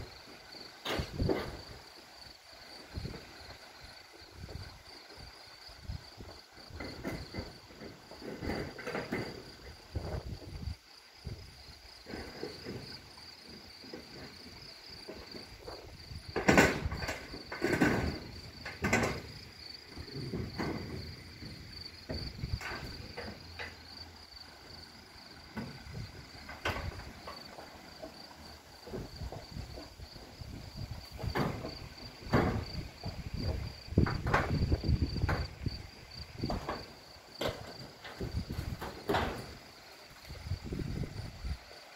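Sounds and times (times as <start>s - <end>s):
knocks and thumps: 0.8s - 1.8s, 6.2s - 24.0s, 25.4s - 39.6s.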